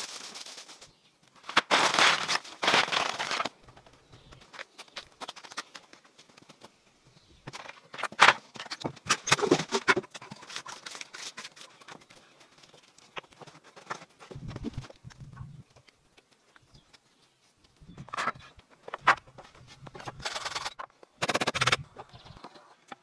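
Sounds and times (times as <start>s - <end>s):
stones clicking and scraping: 7.4s - 23.0s.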